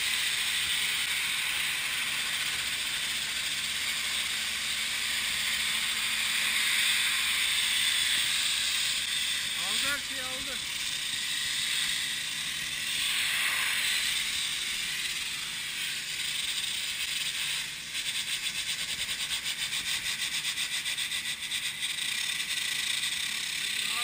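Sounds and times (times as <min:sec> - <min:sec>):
pressure washer jet hissing: 0:00.0 - 0:24.0.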